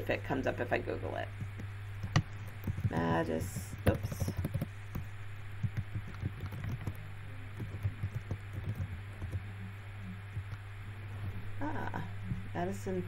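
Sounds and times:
low mains hum: 0:00.0 - 0:13.0
keyboard typing: 0:01.4 - 0:09.4.

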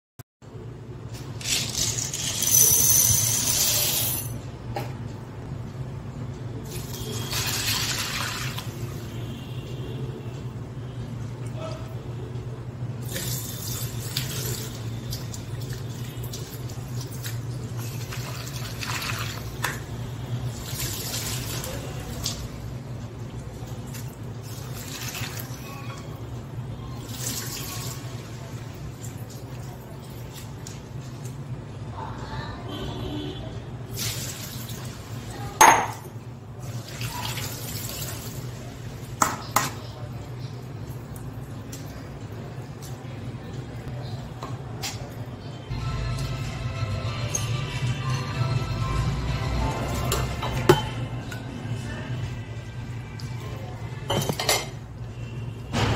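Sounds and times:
tap water running into strainer: 0:13.0 - 0:19.8.

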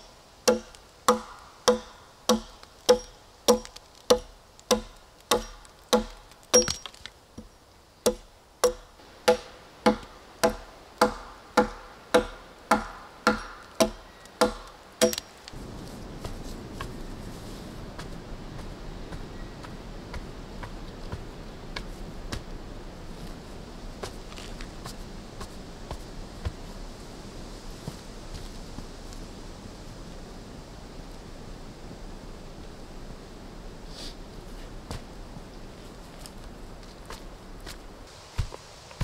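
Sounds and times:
faint steady hush: 0:00.0 - 0:39.0
axe chopping into a log: 0:00.5 - 0:07.0, 0:08.1 - 0:15.2.

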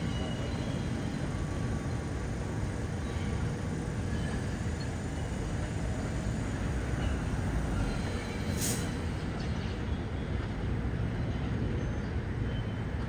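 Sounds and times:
city background noise: 0:00.0 - 0:13.0
subway train rumbling: 0:00.0 - 0:13.0
short sharp hiss: 0:08.5 - 0:09.0.

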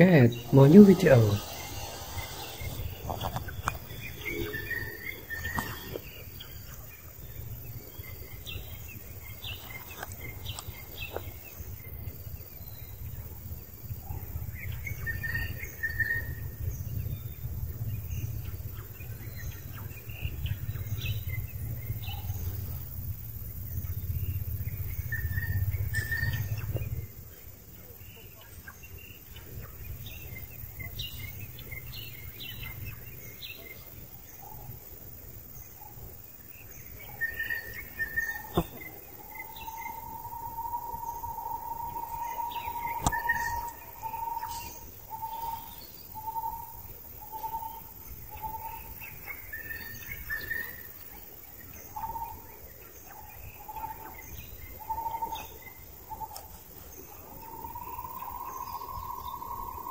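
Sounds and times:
bird chirps: 0:00.0 - 0:13.3, 0:14.0 - 0:22.8, 0:23.8 - 0:34.8, 0:35.7 - 0:59.9
steady low rumble: 0:00.0 - 0:28.0.

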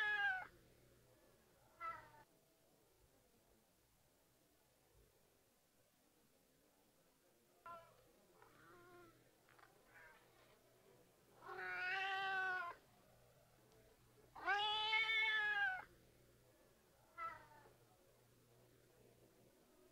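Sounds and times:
cat meowing: 0:00.0 - 0:00.5, 0:11.4 - 0:12.8, 0:14.4 - 0:15.9.

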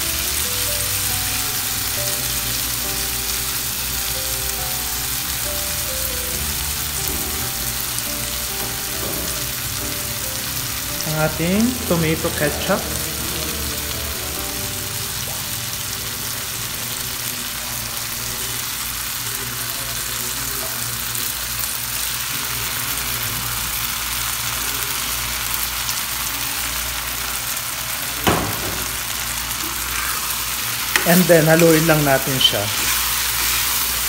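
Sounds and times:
food sizzling in oil: 0:00.0 - 0:34.0
sharp knock: 0:28.3 - 0:29.0.

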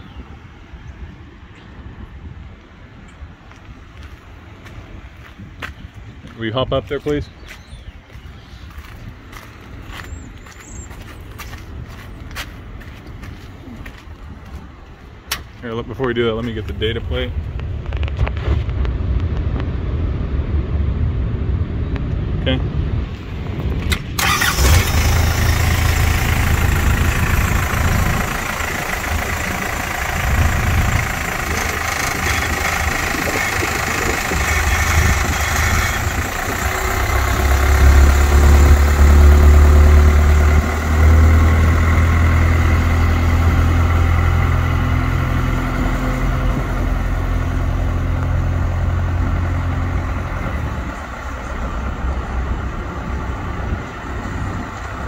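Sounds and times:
tractor engine running: 0:23.6 - 0:55.0.

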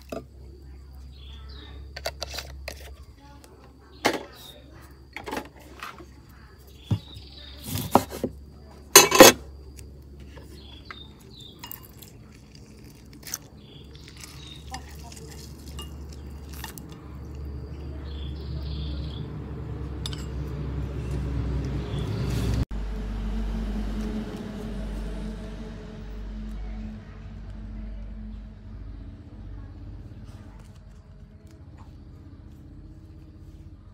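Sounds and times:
metal spoon clinking ceramic bowl: 0:09.0 - 0:09.4, 0:20.0 - 0:20.4
low hum: 0:15.2 - 0:33.9.

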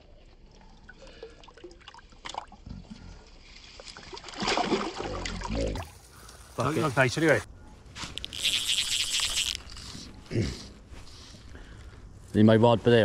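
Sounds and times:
water splashing and sloshing: 0:00.0 - 0:06.7
water trickling and lapping: 0:00.0 - 0:07.0.

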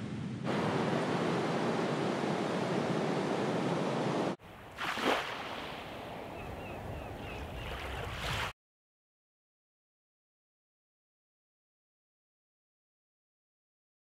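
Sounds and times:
sea surf washing on shore: 0:00.0 - 0:06.4
wind: 0:00.0 - 0:08.6.

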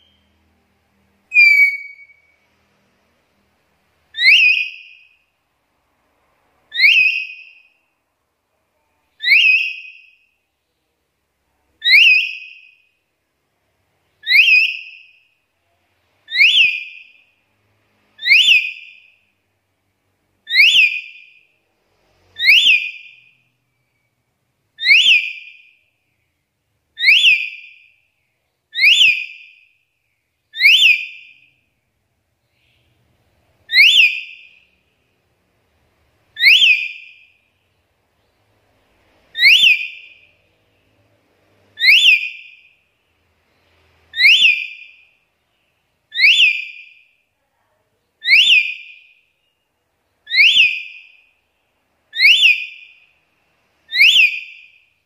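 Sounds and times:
parrot whistled call: 0:01.3 - 0:02.4, 0:04.2 - 0:05.1, 0:06.7 - 0:07.7, 0:09.2 - 0:10.2, 0:11.8 - 0:12.8, 0:14.2 - 0:15.2, 0:16.3 - 0:17.2, 0:18.2 - 0:19.1, 0:20.5 - 0:21.3, 0:22.4 - 0:23.3, 0:24.8 - 0:25.8, 0:27.0 - 0:27.9, 0:28.7 - 0:29.6, 0:30.5 - 0:31.5, 0:33.7 - 0:34.6, 0:36.4 - 0:37.3, 0:39.3 - 0:40.3, 0:41.8 - 0:42.8, 0:44.1 - 0:45.2, 0:46.1 - 0:47.1, 0:48.2 - 0:49.2, 0:50.3 - 0:51.3, 0:52.1 - 0:53.0, 0:53.9 - 0:54.9.

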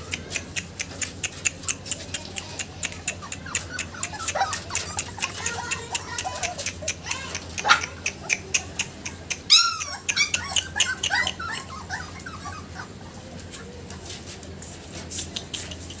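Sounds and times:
puppies whining and yipping: 0:00.0 - 0:16.0
sharp clicks: 0:00.1 - 0:11.4
puppy yelp: 0:00.1 - 0:16.0.

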